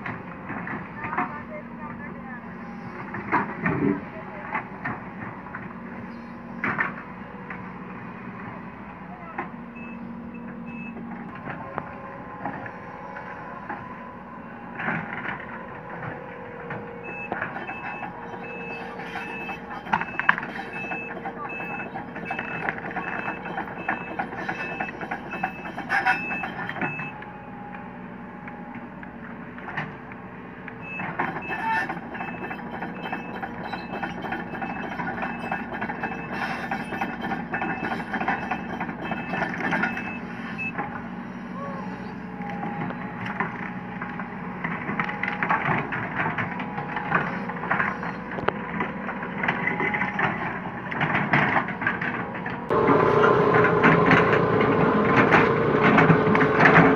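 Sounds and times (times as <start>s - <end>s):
excavator diesel engine: 0.0s - 56.9s
travel alarm beeping: 9.8s - 11.4s, 17.0s - 27.2s, 30.8s - 40.8s.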